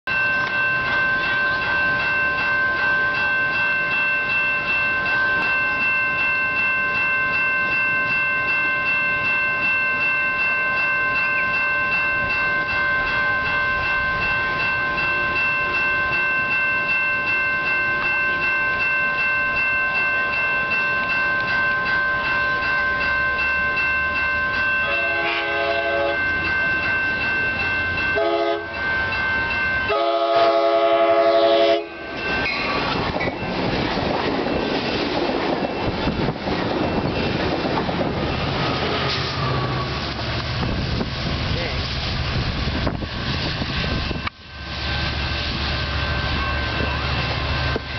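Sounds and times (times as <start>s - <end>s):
crossing warning bell ringing: 0.1s - 47.9s
train rumble: 0.1s - 47.9s
train horn: 24.8s - 26.3s, 28.2s - 28.8s, 29.9s - 32.1s.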